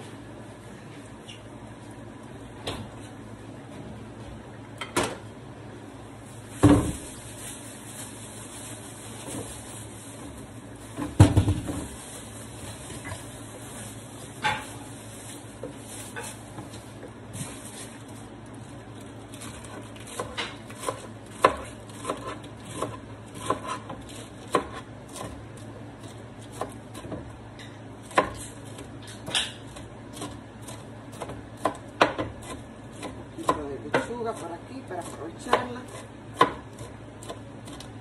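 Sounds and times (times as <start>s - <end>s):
lettuce leaves crunching: 6.4s - 11.0s
knife chopping on plastic board: 20.1s - 25.4s, 28.1s - 37.9s.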